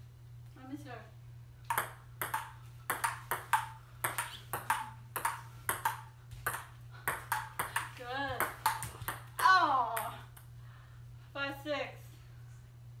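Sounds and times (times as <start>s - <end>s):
table tennis ball clicking: 1.7s - 10.2s.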